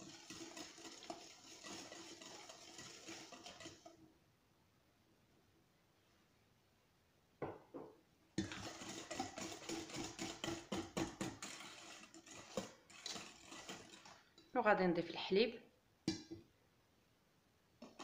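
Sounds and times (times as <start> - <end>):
whisk clinking in metal bowl: 0.0 - 4.0, 8.4 - 14.4.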